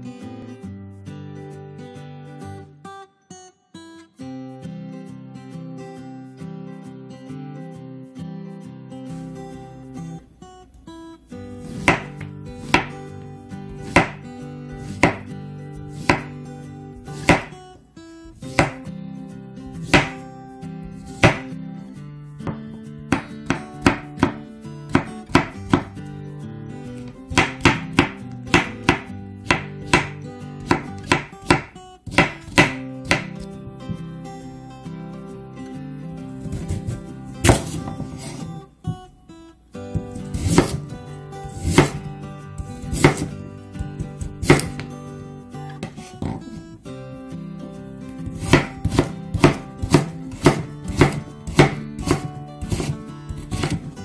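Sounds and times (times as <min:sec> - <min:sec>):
acoustic guitar music: 0:00.0 - 0:54.0
knife knocking on wooden board: 0:21.2 - 0:21.4, 0:45.8 - 0:46.6.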